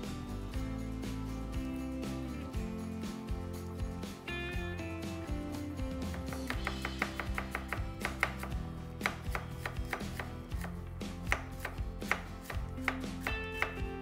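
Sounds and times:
knife tapping on cutting board: 0:06.1 - 0:10.7, 0:11.3 - 0:13.8.

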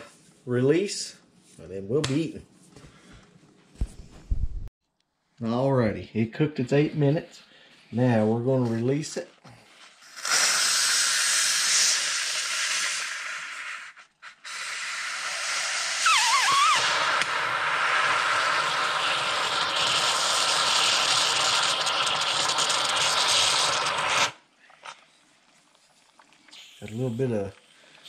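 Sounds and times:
steam hissing from valve: 0:09.9 - 0:24.4.

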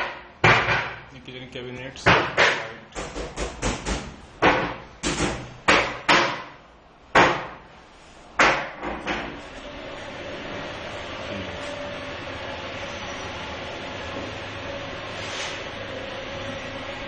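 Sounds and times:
sharp knocks and bangs: 0:00.0 - 0:01.1, 0:02.0 - 0:07.7, 0:08.4 - 0:09.4.

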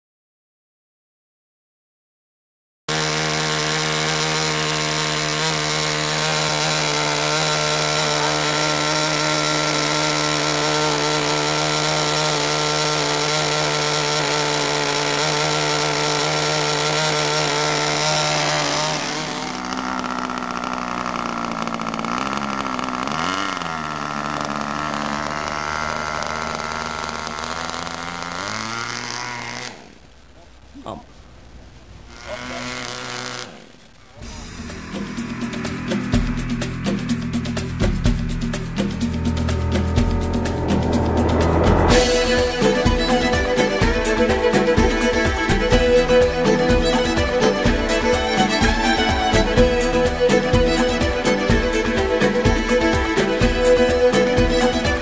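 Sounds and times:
model jet engine running: 0:04.6 - 0:29.7.

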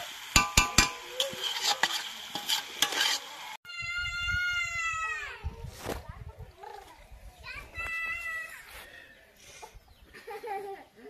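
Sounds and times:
food sizzling: 0:00.0 - 0:03.6
metal spatula scraping pan: 0:00.4 - 0:03.6.

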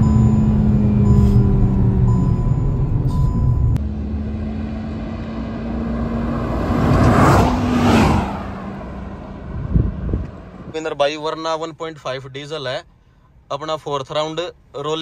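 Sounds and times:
cars passing at speed: 0:03.8 - 0:10.7.

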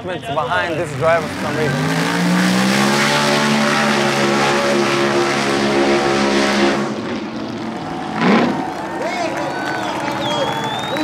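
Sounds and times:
off-road vehicle engine revving: 0:00.6 - 0:08.8.

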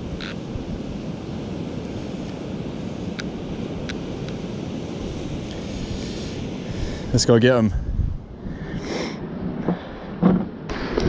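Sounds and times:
wind buffeting microphone: 0:00.0 - 0:11.0
surf breaking on beach: 0:09.1 - 0:11.0.

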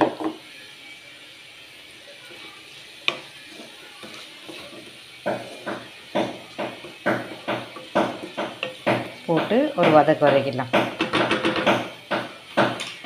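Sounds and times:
vegetables sizzling in a pan: 0:00.0 - 0:13.0
wooden spatula scraping pan: 0:02.3 - 0:11.1.

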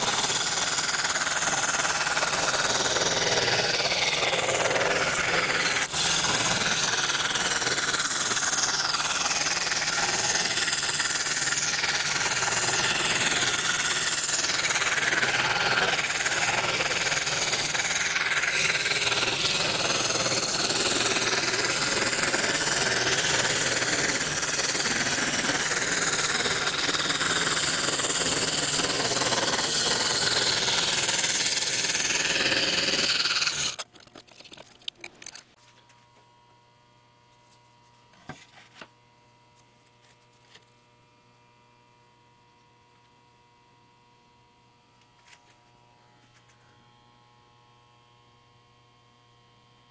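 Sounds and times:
scroll saw buzzing: 0:00.0 - 0:36.2.

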